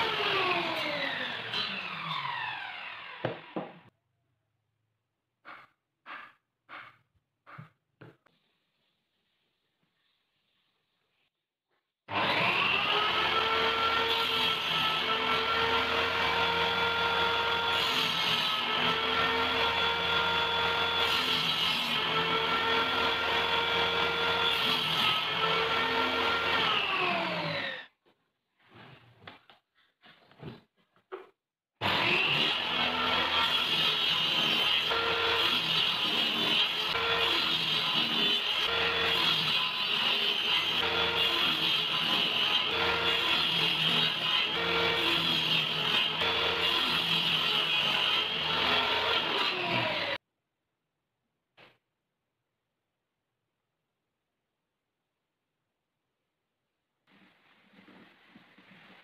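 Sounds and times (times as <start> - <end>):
table saw spinning down: 0.0 - 3.8
table saw whine: 0.0 - 3.8, 31.8 - 50.2
saw blade cutting plywood: 5.4 - 7.8, 12.1 - 27.9, 31.8 - 50.2.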